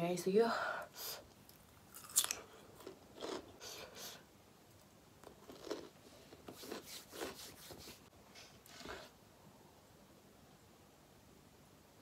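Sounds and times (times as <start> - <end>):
soft chewing and biting: 1.3 - 3.9, 4.7 - 7.3.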